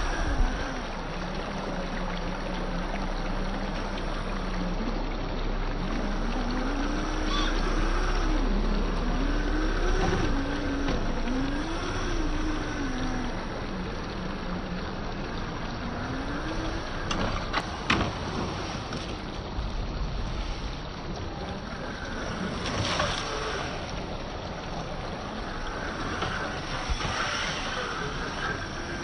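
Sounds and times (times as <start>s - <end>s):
rc car electric motor drone: 0.0s - 1.8s, 5.8s - 19.0s, 21.5s - 29.0s.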